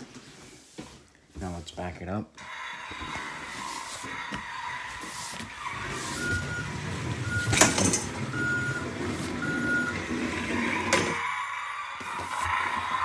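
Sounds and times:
reversing beeps: 6.2 - 10.1.

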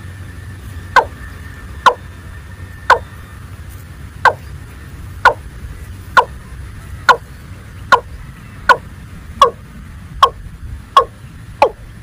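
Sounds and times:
watercock calling: 0.9 - 2.1, 2.9 - 3.2, 4.2 - 4.5, 5.2 - 5.5, 6.2 - 9.6, 10.2 - 10.4, 11.0 - 11.9.

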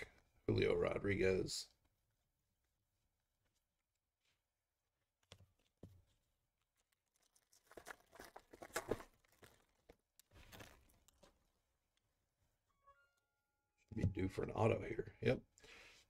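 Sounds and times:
foil wrapper tearing and crinkling: 7.1 - 11.3.

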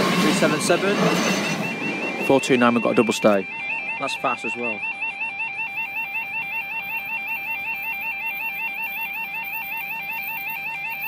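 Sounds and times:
level crossing alarm two-tone: 0.0 - 11.0.

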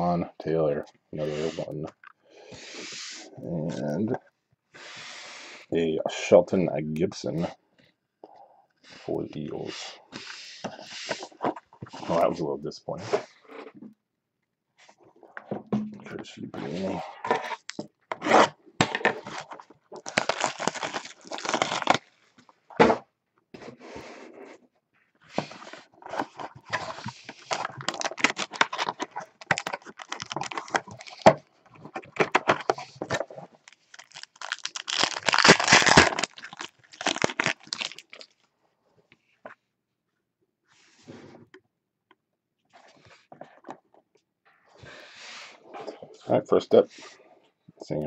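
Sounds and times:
foil pack ripping and crinkling: 18.2 - 22.1, 27.4 - 31.4, 33.6 - 38.4
cardboard box being torn open: 20.0 - 22.0, 27.6 - 31.4, 34.0 - 38.1.

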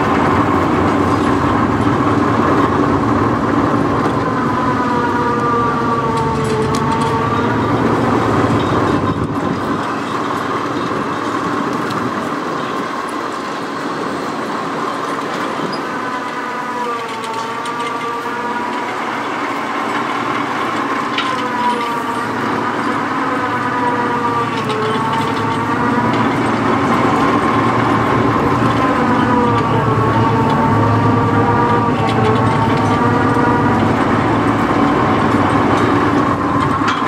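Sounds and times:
diesel truck engines running: 0.0 - 37.0
winch whine: 0.0 - 37.0.

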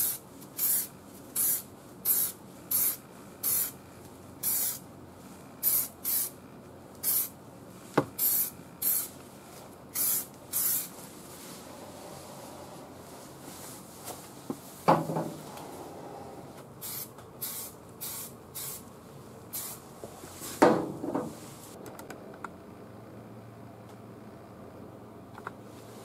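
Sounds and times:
aerosol spray hissing: 0.0 - 3.8, 4.4 - 4.8, 5.6 - 6.4, 7.0 - 7.3, 8.2 - 9.2, 9.9 - 11.0, 16.8 - 18.8, 19.5 - 19.8
loud knocks: 14.9 - 15.4.

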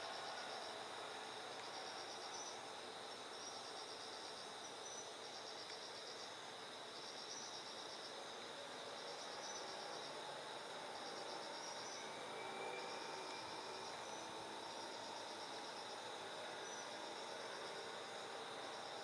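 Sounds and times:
insects trilling: 0.0 - 19.0
high-pitched insect drone: 11.0 - 19.0.

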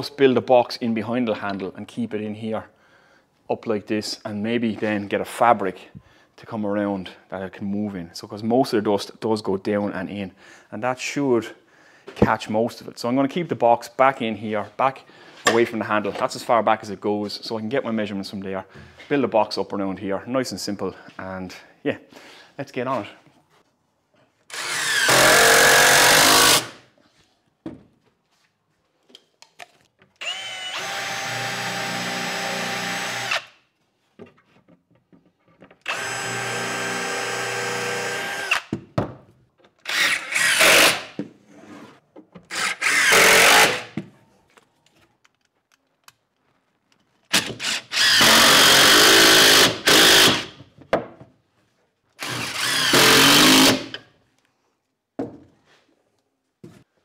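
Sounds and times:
cordless drill driving screws: 24.5 - 26.8, 30.2 - 33.5, 35.8 - 38.7, 39.8 - 41.1, 42.5 - 43.9, 47.3 - 50.5, 52.2 - 54.0.

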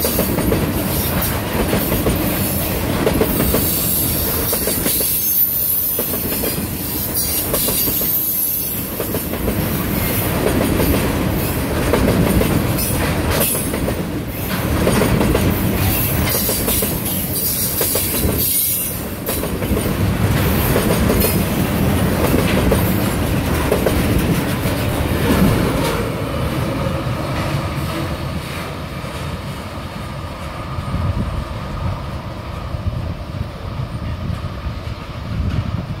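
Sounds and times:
train wheels clacking over rail joints: 0.0 - 26.2
freight train rolling past: 0.0 - 36.0.

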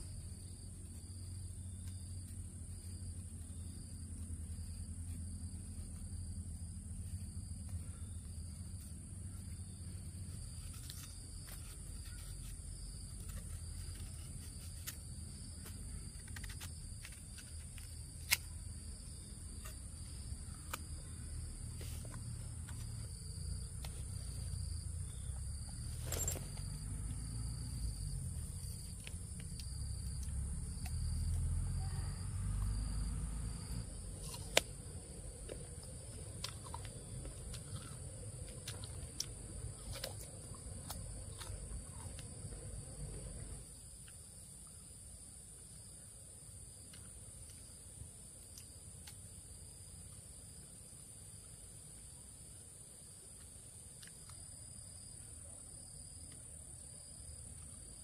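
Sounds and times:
insect chirring: 0.0 - 45.0.

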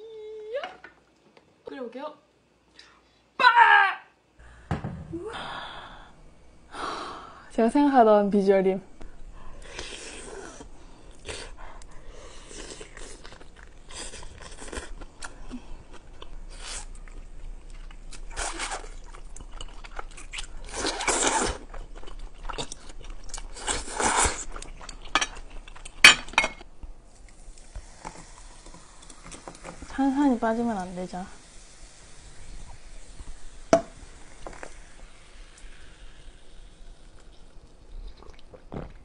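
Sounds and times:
slurping noodles: 20.6 - 21.7.

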